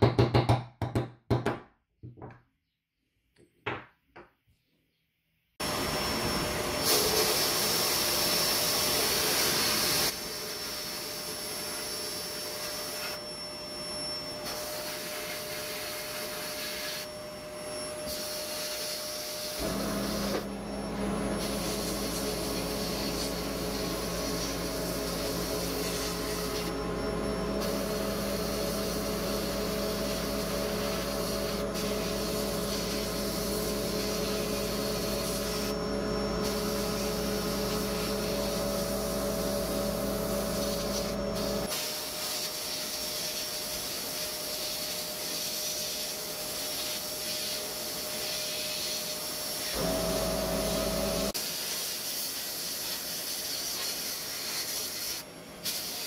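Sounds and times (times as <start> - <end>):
sandblasting hiss on metal: 6.8 - 11.2, 14.4 - 17.1, 18.0 - 20.5, 21.4 - 26.7, 27.6 - 35.7, 36.4 - 56.0
motor humming: 19.4 - 41.7, 49.8 - 51.4.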